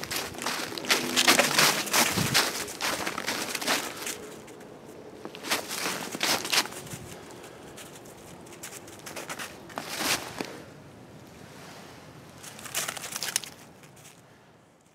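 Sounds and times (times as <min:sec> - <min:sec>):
footsteps crunching in wet snow: 0:00.0 - 0:10.6.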